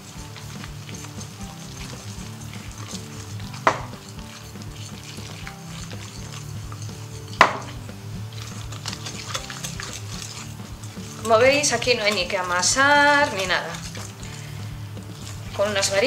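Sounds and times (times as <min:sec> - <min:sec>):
whisk clinking against glass: 0:00.0 - 0:16.0
whisk stirring thick batter: 0:00.0 - 0:16.0.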